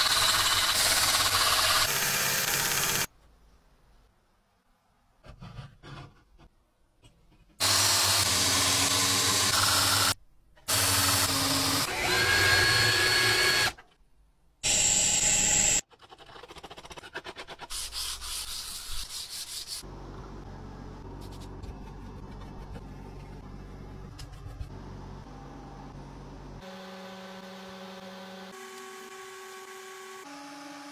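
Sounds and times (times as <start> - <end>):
power tools cutting metal: 0.0 - 3.1, 7.6 - 13.8
steady low hum: 19.8 - 26.6.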